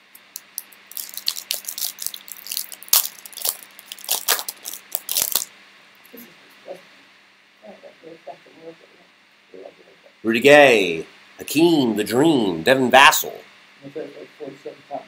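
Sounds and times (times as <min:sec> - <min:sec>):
foil wrapper crinkling: 0:00.2 - 0:05.5.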